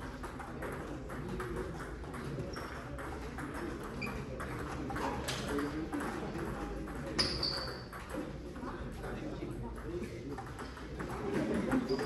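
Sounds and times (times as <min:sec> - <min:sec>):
table tennis balls clicking: 0:00.0 - 0:08.4
low background murmur: 0:00.0 - 0:12.0.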